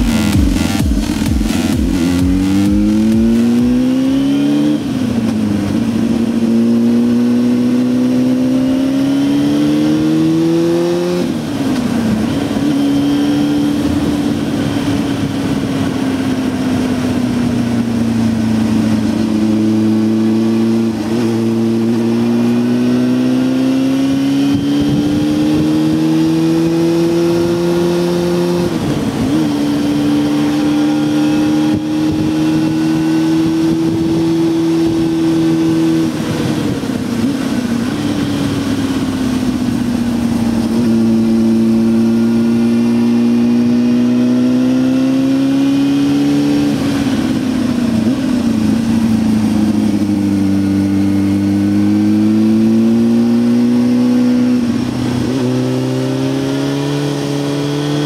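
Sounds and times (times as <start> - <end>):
motorcycle engine under load: 0.0 - 58.0.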